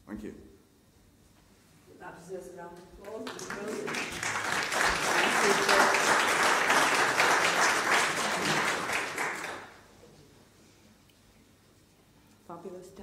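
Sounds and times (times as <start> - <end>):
audience applauding: 3.1 - 9.9.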